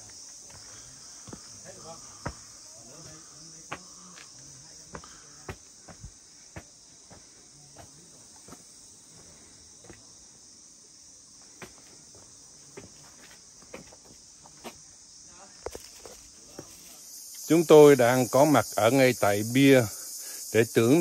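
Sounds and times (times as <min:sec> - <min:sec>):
footsteps: 0:00.0 - 0:10.1
insects buzzing: 0:00.0 - 0:21.0.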